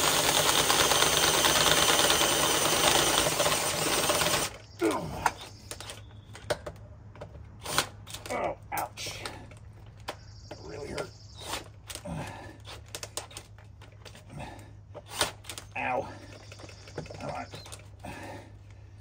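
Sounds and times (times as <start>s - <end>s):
cordless drill boring into metal: 0.0s - 4.6s.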